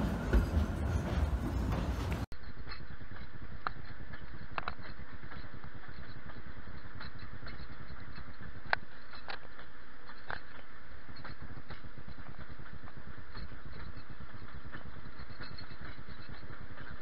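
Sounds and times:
train rumbling on track: 0:00.0 - 0:02.3
wheels squeaking and clicking: 0:00.0 - 0:17.0.

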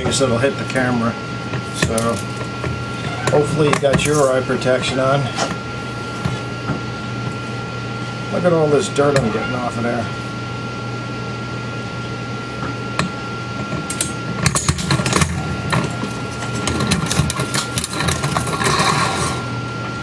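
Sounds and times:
steady hum: 0:00.0 - 0:20.0
metal coils clicking and scraping: 0:14.6 - 0:19.4.

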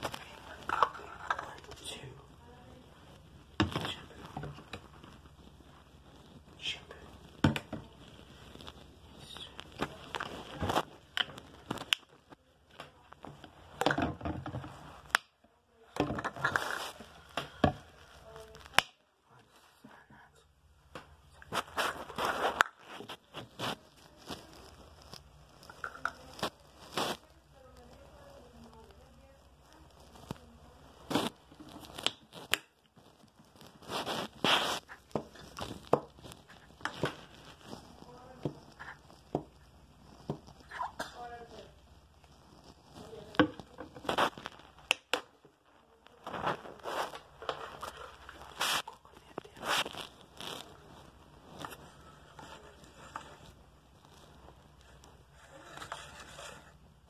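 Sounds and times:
plastic bottle and cup crackling: 0:00.0 - 0:57.0
handling rustles and rubs: 0:16.2 - 0:18.8, 0:21.4 - 0:44.9, 0:45.6 - 0:57.0.

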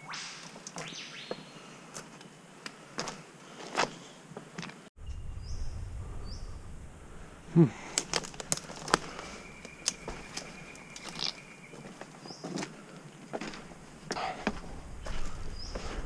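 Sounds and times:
bird chirps: 0:00.0 - 0:01.7, 0:05.0 - 0:06.6, 0:09.0 - 0:12.6
footsteps on rocks: 0:03.0 - 0:04.8, 0:07.9 - 0:16.0.

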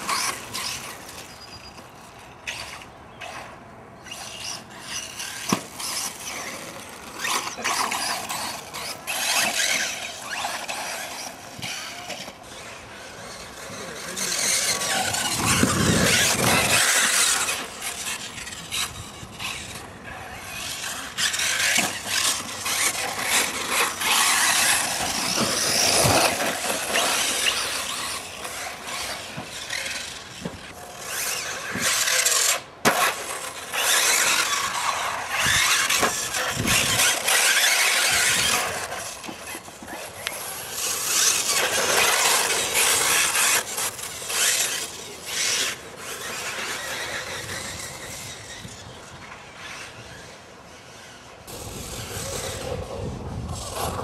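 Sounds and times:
tyre squeal: 0:00.0 - 0:33.0
rc car motor whine: 0:00.0 - 0:54.0.

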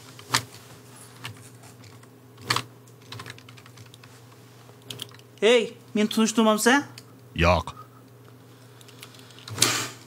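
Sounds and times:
computer keyboard keystrokes: 0:01.9 - 0:04.1, 0:04.8 - 0:05.2
low steady hum: 0:06.9 - 0:08.8.

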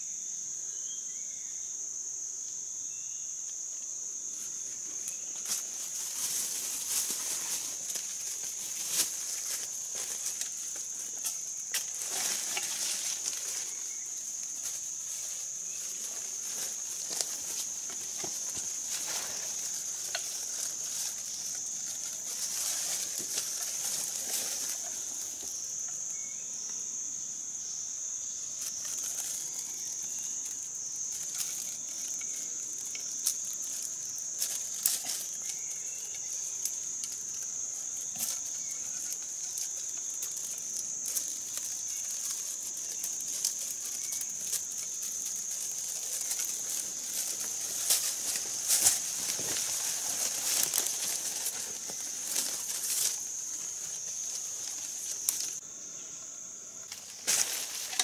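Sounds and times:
insects droning: 0:00.0 - 0:58.0
rustling leaves: 0:03.7 - 0:58.0
twigs snapping: 0:31.1 - 0:55.6.

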